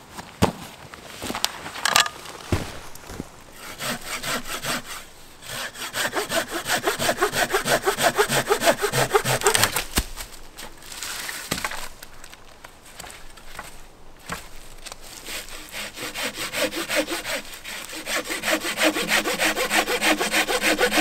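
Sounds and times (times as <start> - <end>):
hand saw cutting branch: 3.6 - 10.1, 13.6 - 21.0.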